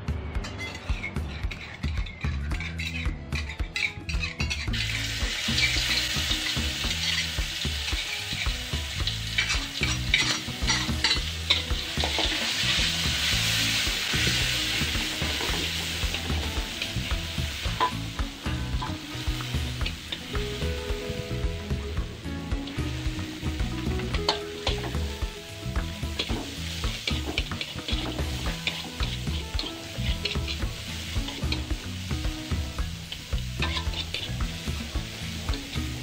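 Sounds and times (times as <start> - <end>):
metal spatula scraping and clinking: 0.3 - 12.8, 24.0 - 25.1, 26.1 - 31.7, 33.1 - 36.0
sauce sizzling in hot oil: 0.9 - 36.0.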